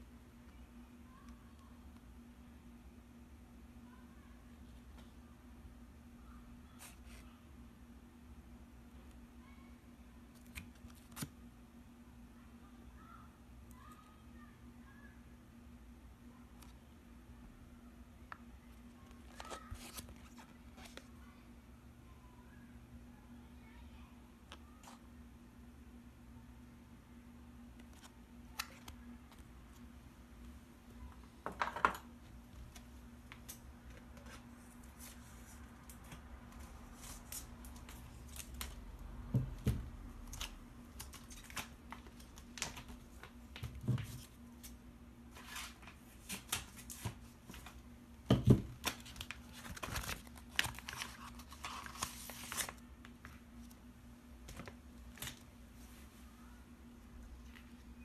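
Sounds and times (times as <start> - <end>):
plastic packaging crinkling: 48.8 - 53.3.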